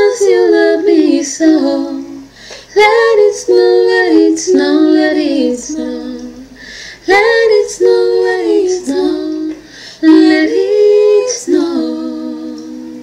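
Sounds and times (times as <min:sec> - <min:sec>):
woman singing in harmony: 0:00.0 - 0:13.0.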